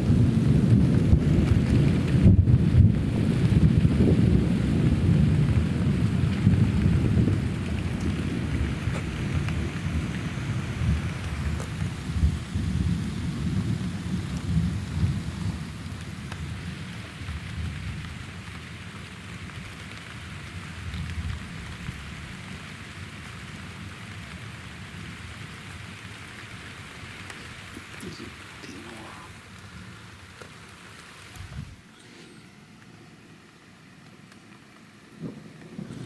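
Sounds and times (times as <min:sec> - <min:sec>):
thunder rumbling: 0:00.0 - 0:19.7, 0:34.2 - 0:36.0
steady rain falling: 0:00.0 - 0:36.0.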